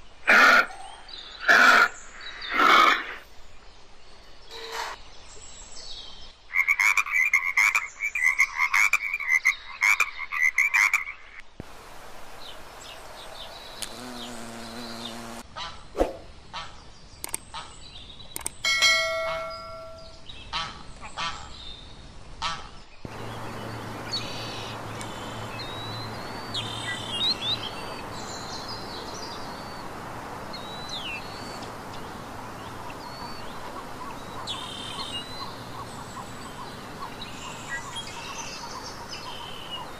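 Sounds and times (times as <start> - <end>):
steady outdoor hiss: 0.0 - 10.3, 11.0 - 39.9
small birds chirping: 11.6 - 15.7, 16.6 - 18.7, 22.8 - 39.9.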